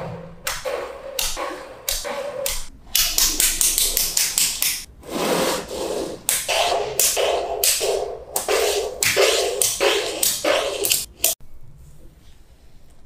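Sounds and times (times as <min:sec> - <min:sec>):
magnetic balls clicking together: 0:01.2 - 0:04.9.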